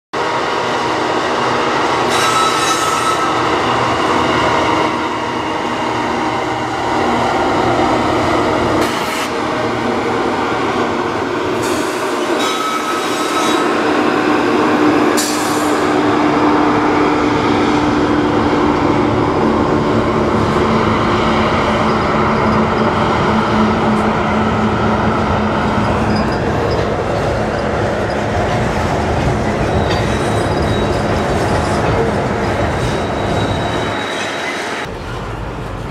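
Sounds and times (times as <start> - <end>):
diesel locomotives passing: 0.2 - 35.9
freight cars rumbling over steel bridge: 0.2 - 35.9
train wheel squeals: 2.1 - 3.5, 11.6 - 13.8, 25.7 - 28.3, 29.4 - 34.9.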